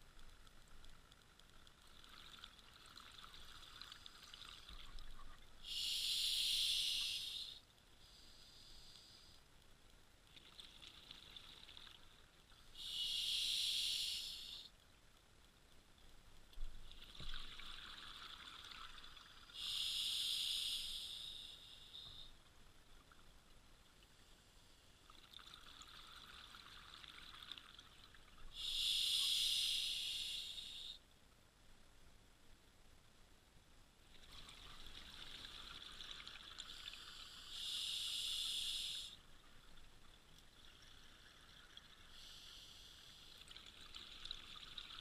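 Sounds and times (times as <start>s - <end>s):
regulator inhale hiss: 5.6s - 9.6s, 12.7s - 14.7s, 19.6s - 22.4s, 28.5s - 31.0s, 36.6s - 39.2s, 42.1s - 43.4s.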